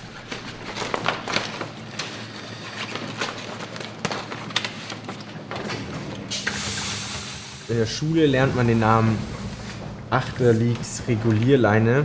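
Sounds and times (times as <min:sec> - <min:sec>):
sailcloth rustling and crinkling: 0:00.0 - 0:05.5.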